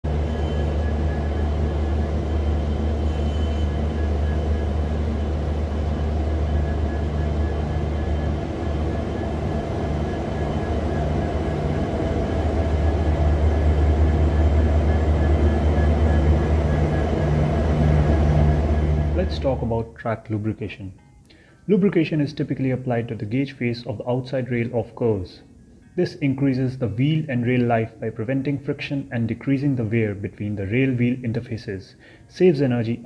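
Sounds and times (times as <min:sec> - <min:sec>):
locomotive diesel engine droning: 0:00.0 - 0:19.8.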